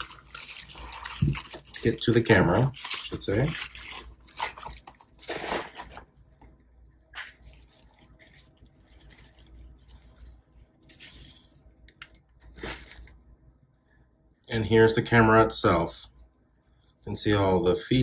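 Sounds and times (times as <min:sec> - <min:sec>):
cloth bag rustling: 0:00.0 - 0:06.4, 0:07.2 - 0:11.6, 0:12.4 - 0:13.1
bubble wrap crinkling: 0:00.0 - 0:11.8, 0:12.4 - 0:13.2.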